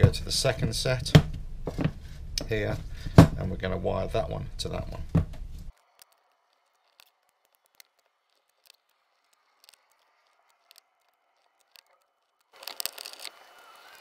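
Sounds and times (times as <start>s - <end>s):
electrical tape being wrapped: 5.7s - 14.0s.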